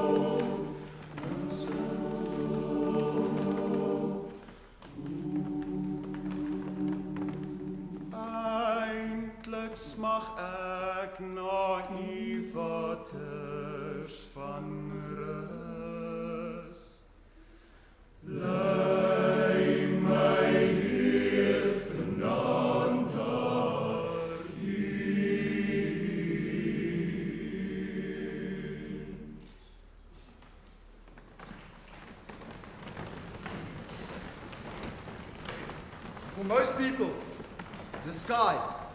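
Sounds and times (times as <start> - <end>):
male choir singing a cappella: 0.0 - 17.1, 18.2 - 29.6.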